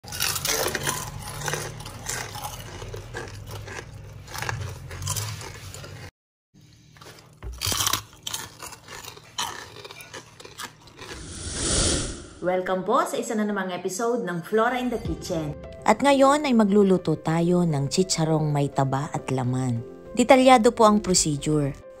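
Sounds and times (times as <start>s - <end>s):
crunching fried pork rinds: 0.0s - 11.2s
rush of noise: 11.2s - 12.5s.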